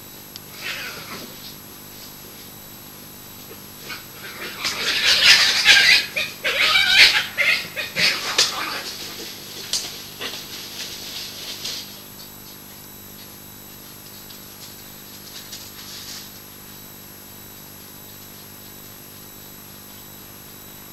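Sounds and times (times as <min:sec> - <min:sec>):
electrical hum and hiss: 0:00.0 - 0:20.9
badgers screeching: 0:00.5 - 0:01.4, 0:03.8 - 0:10.9
scuffling squeals: 0:00.5 - 0:02.6, 0:03.3 - 0:12.2.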